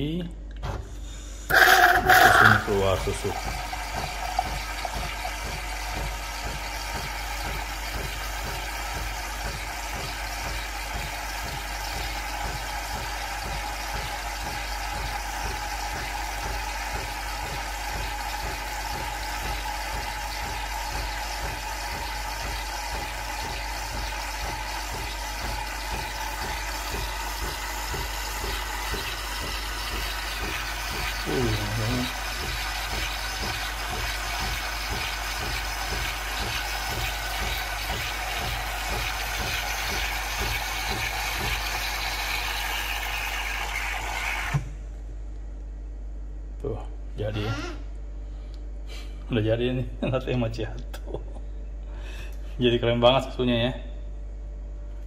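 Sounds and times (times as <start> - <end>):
coffee machine frothing milk: 1.5 - 44.8.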